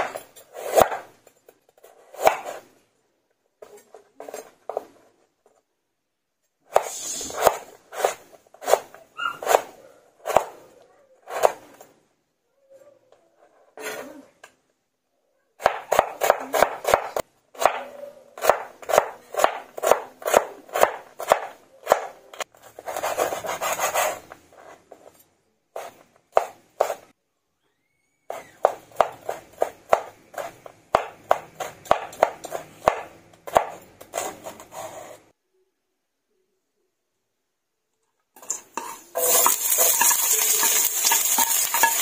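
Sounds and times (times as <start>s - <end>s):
knife chopping on wooden board: 2.2s - 2.6s, 15.6s - 17.8s, 18.4s - 22.1s, 25.8s - 27.1s, 28.3s - 34.7s
continuous scraping: 12.7s - 14.4s, 34.0s - 35.4s.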